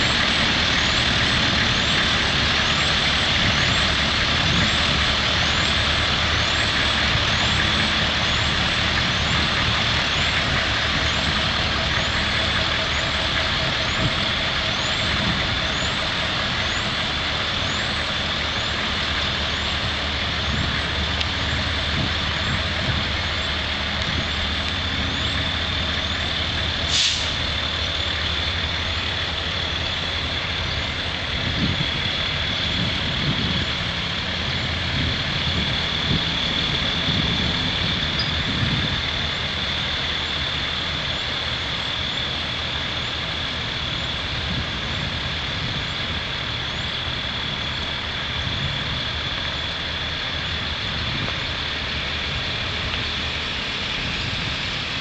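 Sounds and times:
high engine whine: 0:00.0 - 0:55.0
vehicle engines rumbling: 0:00.0 - 0:55.0
short hiss: 0:26.9 - 0:27.4.

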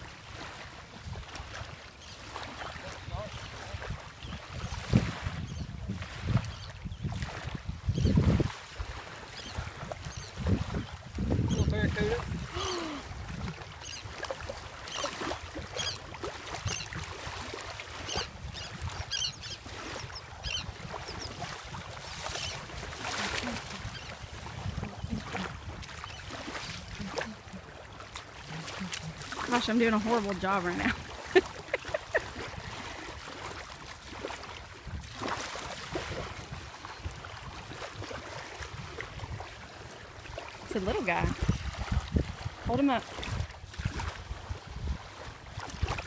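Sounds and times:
small waves washing: 0:00.0 - 0:46.0
wind buffeting microphone: 0:03.0 - 0:14.7, 0:15.5 - 0:33.1, 0:40.8 - 0:46.0
high chirping bird calls: 0:18.1 - 0:21.4.

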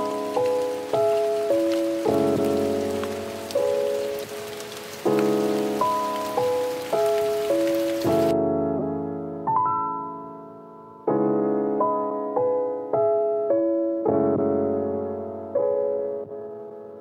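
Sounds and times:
rain hiss: 0:00.0 - 0:08.3
slow solo piano melody: 0:00.0 - 0:17.0.

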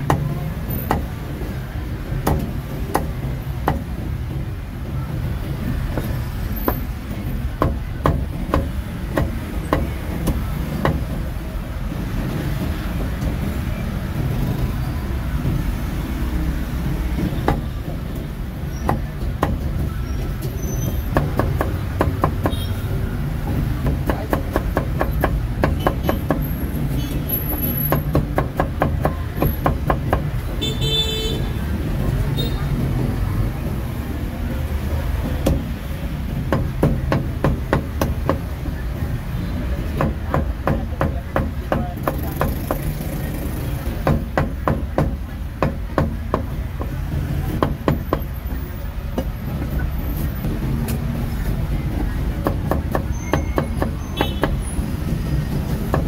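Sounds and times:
street traffic rumbling: 0:00.0 - 0:56.0
cleaver chopping on wooden block: 0:00.9 - 0:01.1, 0:02.2 - 0:03.9
vehicle horn: 0:30.6 - 0:31.6.

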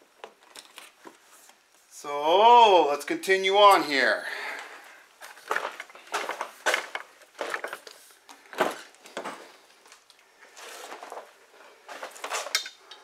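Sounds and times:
rustling: 0:04.7 - 0:12.6.

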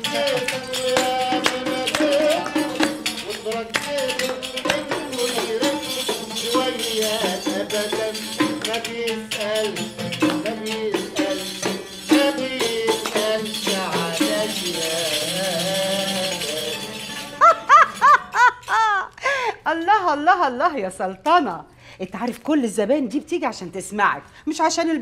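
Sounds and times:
oud music: 0:00.0 - 0:18.4
frame drum with jingles: 0:00.0 - 0:18.9
hands clapping: 0:00.9 - 0:05.0, 0:10.2 - 0:10.5.

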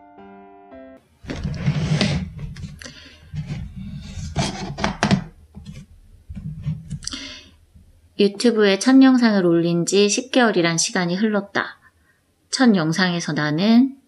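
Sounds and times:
rustling of handled objects: 0:01.2 - 0:08.0.

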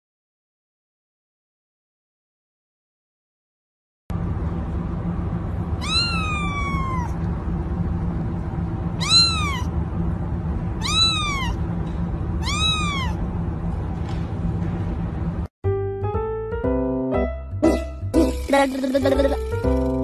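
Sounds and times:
steady low hum: 0:04.1 - 0:15.5
kitten meowing: 0:05.8 - 0:07.2, 0:09.0 - 0:09.7, 0:10.8 - 0:11.6, 0:12.4 - 0:13.2.

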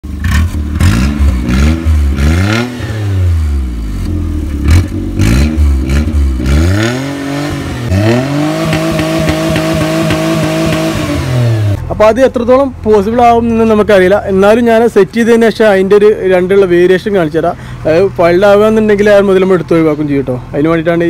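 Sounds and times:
car engine revving: 0:00.0 - 0:11.9.

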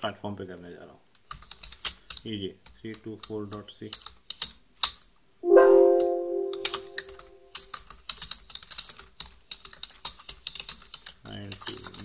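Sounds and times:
rapid typing on keyboard: 0:01.2 - 0:02.2, 0:07.9 - 0:12.0
computer alert chime: 0:05.4 - 0:07.4.

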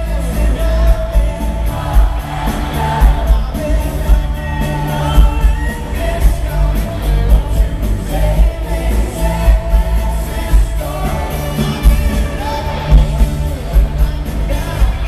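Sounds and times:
male lead vocal: 0:00.0 - 0:15.0
pop-rock band playing: 0:00.0 - 0:15.0.

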